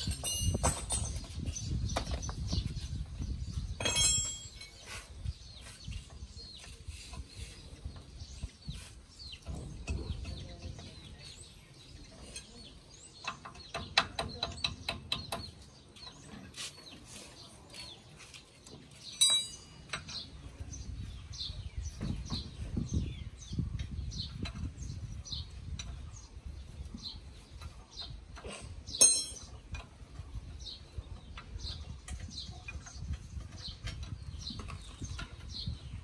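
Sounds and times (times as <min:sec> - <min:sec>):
metal tools clinking on metal: 0:00.0 - 0:01.4, 0:03.8 - 0:05.0, 0:19.0 - 0:20.3, 0:29.0 - 0:29.9.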